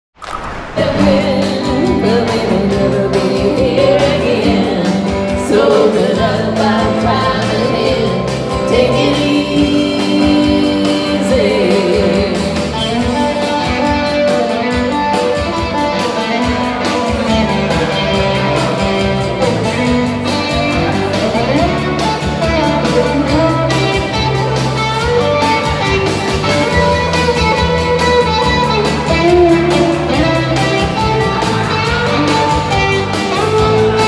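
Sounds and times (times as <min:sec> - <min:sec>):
synthesizer keyboard: 0:00.1 - 0:02.7
electric guitar: 0:00.2 - 0:34.0
two women singing: 0:00.8 - 0:13.4.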